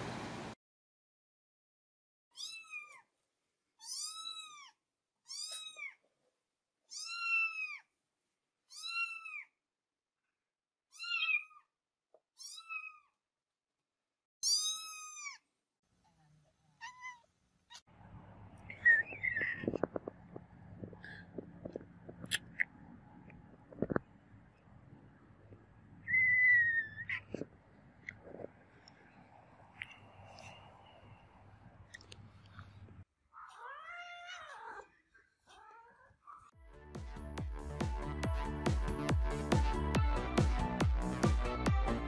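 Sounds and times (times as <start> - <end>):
cat meowing: 2.4 - 3.1, 3.8 - 6.0, 6.9 - 7.9, 8.7 - 9.6, 10.9 - 11.7, 12.4 - 13.2, 14.4 - 15.4, 16.8 - 17.8, 33.4 - 34.9.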